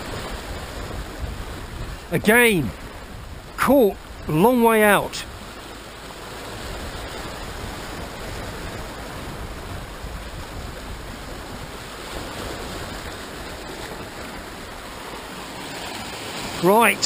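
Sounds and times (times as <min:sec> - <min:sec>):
surf breaking over rocks: 0:00.0 - 0:17.0.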